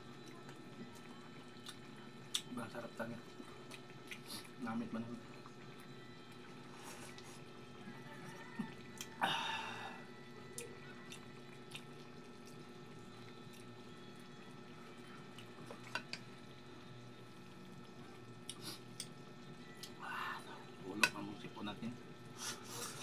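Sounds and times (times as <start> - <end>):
chewing smacks: 0.9 - 2.5, 3.6 - 4.6, 10.5 - 12.7.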